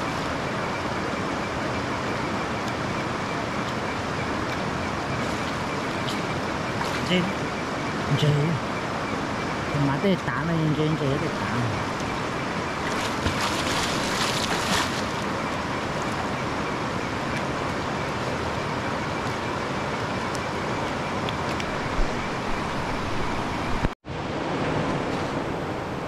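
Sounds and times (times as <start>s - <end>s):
flowing stream water: 0.0s - 26.0s
water splashing: 11.3s - 18.4s.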